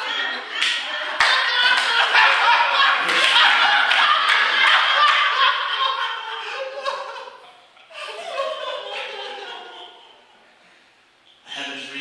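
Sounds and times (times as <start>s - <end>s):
audience applauding: 0.0s - 5.6s
audience laughing: 0.0s - 10.4s.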